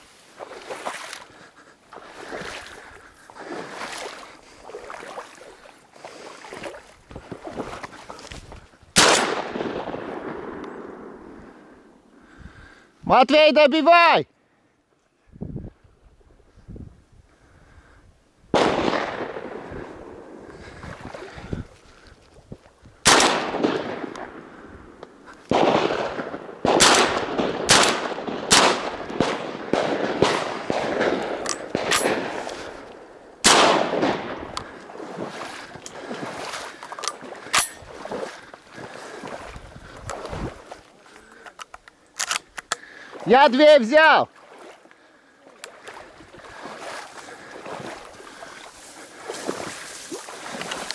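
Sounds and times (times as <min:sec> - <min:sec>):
shotgun shots: 0:09.0 - 0:11.2, 0:18.6 - 0:20.3, 0:23.0 - 0:24.5, 0:25.5 - 0:32.8, 0:33.4 - 0:34.6.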